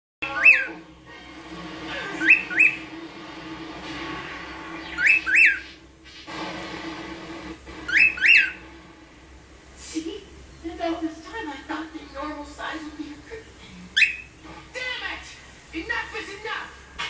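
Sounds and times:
cockatiel wolf whistle: 0.3s - 0.7s, 2.2s - 2.8s, 4.9s - 5.6s, 7.9s - 8.6s, 14.0s - 14.3s.

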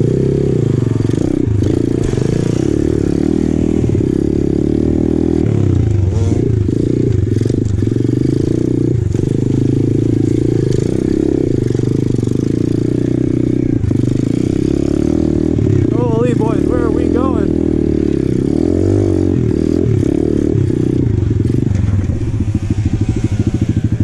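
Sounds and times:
motorbike engine revving: 0.0s - 24.0s
bike knocking and rattling: 20.7s - 24.0s.

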